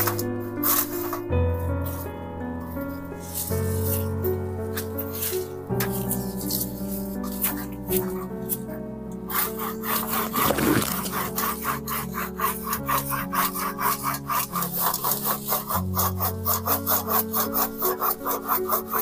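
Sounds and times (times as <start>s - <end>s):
hand saw cutting branch: 0.0s - 1.2s, 9.3s - 19.0s
background music: 0.0s - 19.0s.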